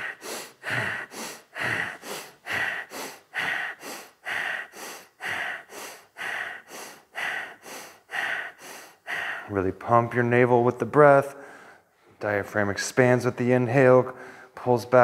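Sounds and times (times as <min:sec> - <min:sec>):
rapid rhythmic nose breathing: 0:00.0 - 0:09.7.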